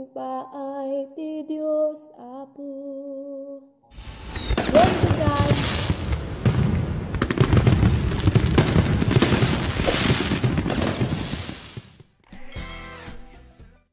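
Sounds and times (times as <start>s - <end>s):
fireworks low booms: 3.9s - 12.1s
fireworks crackling: 3.9s - 12.2s.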